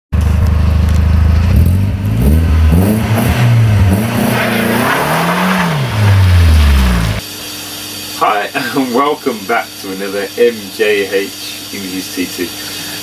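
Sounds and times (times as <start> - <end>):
car engine revving: 0.2 - 7.3.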